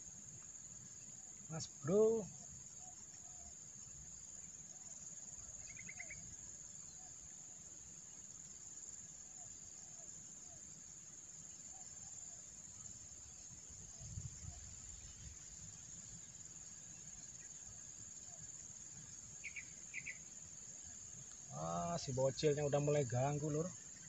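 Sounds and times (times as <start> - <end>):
insect trill: 0.0 - 24.0
short insect chirps: 0.0 - 24.0.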